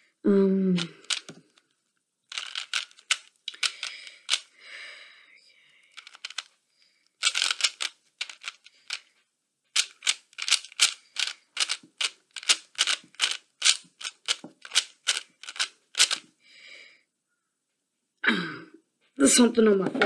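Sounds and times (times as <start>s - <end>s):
plastic puzzle cube clicking: 0.8s - 1.7s, 2.3s - 4.6s, 5.8s - 6.5s, 7.1s - 9.1s, 9.7s - 16.3s.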